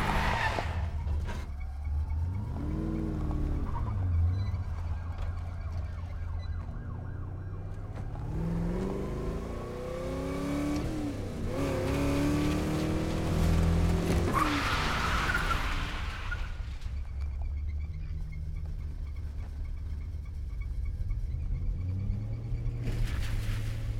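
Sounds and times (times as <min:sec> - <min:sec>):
car engine revving hard: 0:08.2 - 0:14.4.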